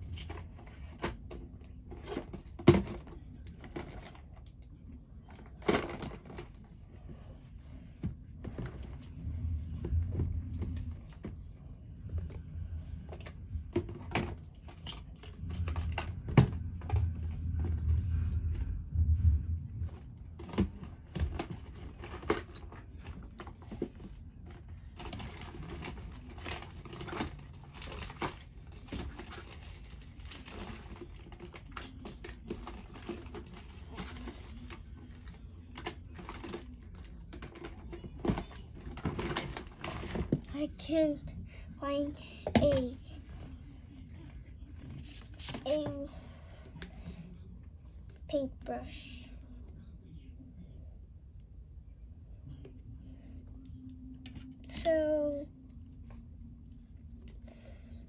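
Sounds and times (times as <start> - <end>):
low rumble: 6.5 - 31.0.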